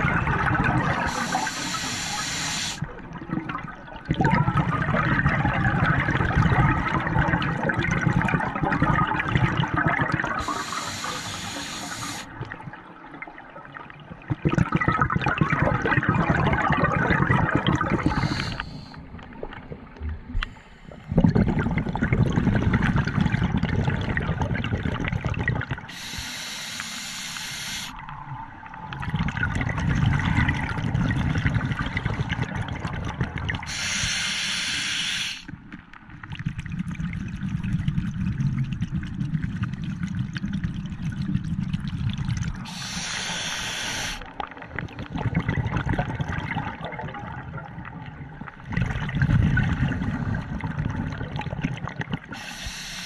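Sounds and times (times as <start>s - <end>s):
exhaled bubbles rumbling underwater: 0.0s - 26.4s, 27.9s - 34.4s, 35.4s - 53.0s
hissing regulator inhalations: 1.0s - 2.8s, 10.4s - 12.3s, 18.0s - 19.0s, 25.9s - 28.0s, 33.7s - 35.5s, 42.6s - 44.3s, 52.3s - 53.0s.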